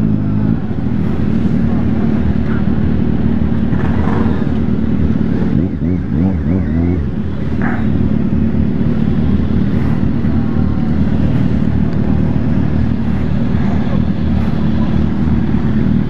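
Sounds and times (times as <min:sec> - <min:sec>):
motorcycle engine idling: 0:00.0 - 0:16.0.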